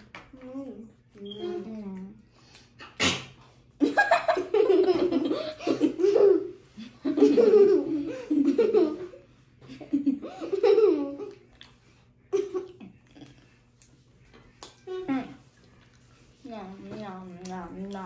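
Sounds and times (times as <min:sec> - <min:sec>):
girls giggling: 0:03.8 - 0:11.5, 0:12.3 - 0:13.0.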